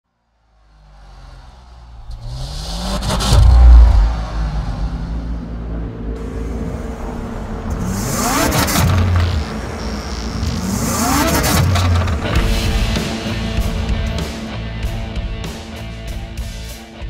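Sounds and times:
whooshes rising and falling: 1.1s - 9.3s
low steady rumble: 1.3s - 11.0s.

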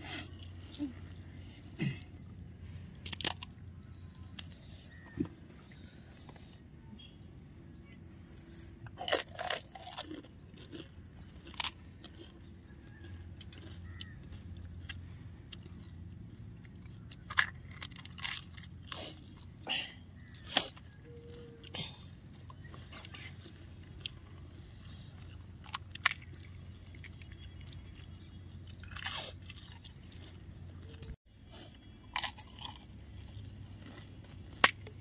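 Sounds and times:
low steady hum: 0.0s - 35.0s
crisp shells crunching: 3.0s - 4.9s, 9.0s - 14.2s, 17.1s - 19.5s.

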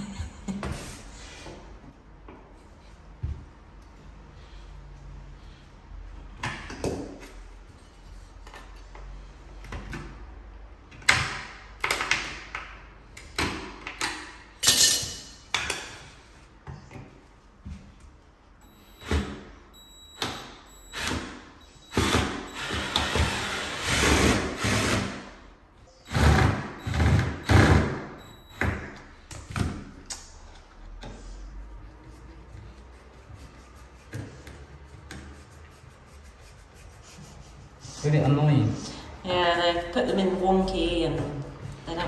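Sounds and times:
tools knocking and scraping: 13.3s - 17.2s
cordless drill bursts: 21.9s - 25.3s.

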